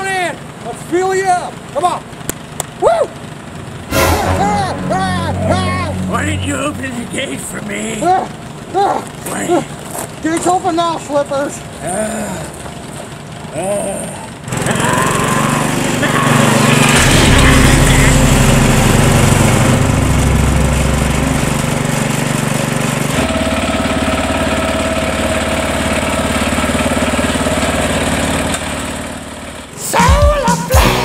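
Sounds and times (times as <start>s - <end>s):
riding mower engines droning: 0.0s - 30.0s.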